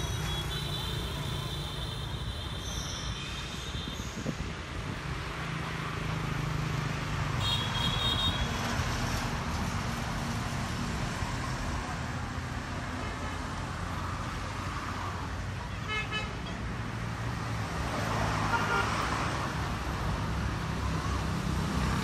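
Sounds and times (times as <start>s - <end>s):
passing vehicle engines: 0.0s - 22.0s.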